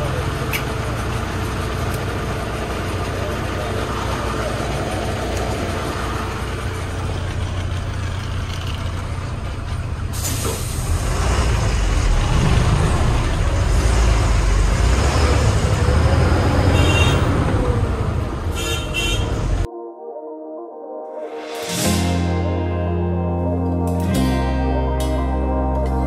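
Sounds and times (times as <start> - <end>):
truck diesel engine running: 0.0 - 19.7
air brakes hissing: 10.1 - 11.2.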